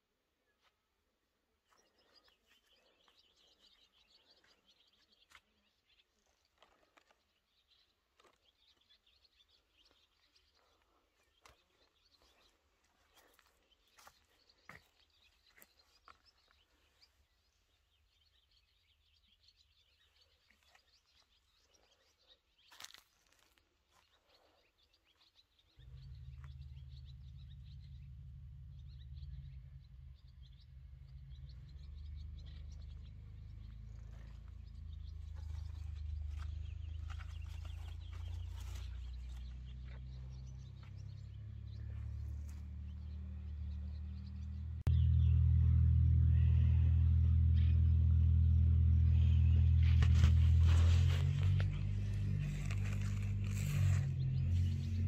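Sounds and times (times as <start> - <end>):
birds chirping: 0.0 - 55.0
steady low rumble: 25.8 - 55.0.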